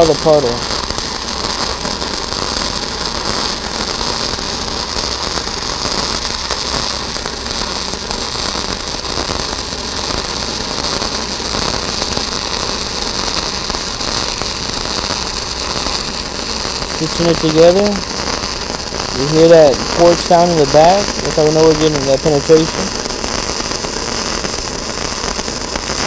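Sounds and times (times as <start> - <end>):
welding arc crackling and hissing: 0.0 - 26.0.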